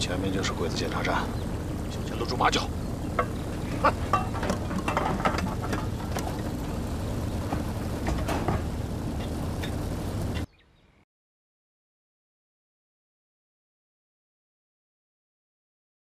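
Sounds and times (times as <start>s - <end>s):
truck engine rumbling: 0.0s - 10.5s
rattles and knocks: 3.0s - 10.4s.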